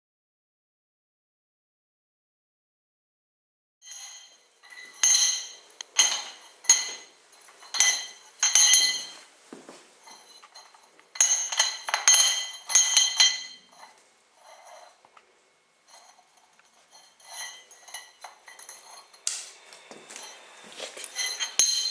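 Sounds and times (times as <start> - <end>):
metal dumbbell clinking on tiles: 3.8 - 9.3, 10.0 - 15.0, 15.8 - 21.9.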